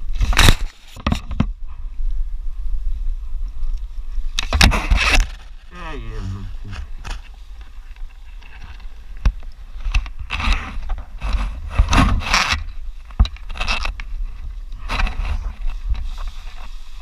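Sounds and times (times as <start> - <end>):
steady low rumble: 5.5 - 10.2.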